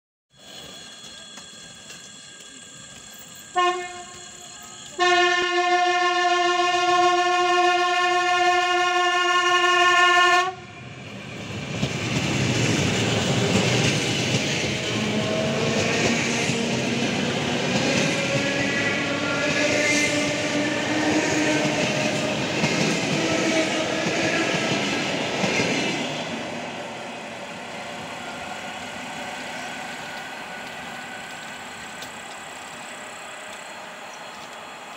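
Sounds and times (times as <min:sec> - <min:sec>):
train wheels on rails: 0:00.3 - 0:09.1, 0:09.8 - 0:34.9
train horn: 0:03.5 - 0:10.8, 0:18.0 - 0:24.8.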